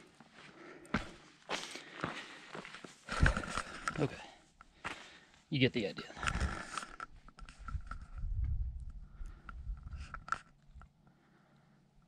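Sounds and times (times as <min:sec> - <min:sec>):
camera gear clicks and scrapes: 0:06.2 - 0:10.8
wind buffeting microphone: 0:07.5 - 0:10.2.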